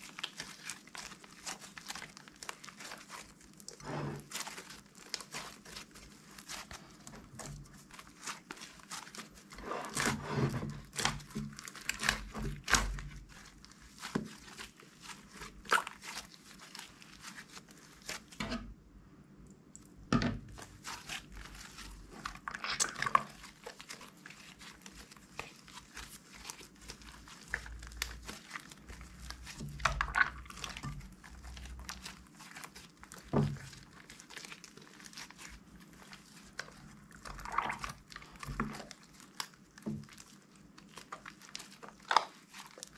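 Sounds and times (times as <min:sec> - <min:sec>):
slime squishing and popping: 0:09.9 - 0:18.4, 0:19.8 - 0:42.9.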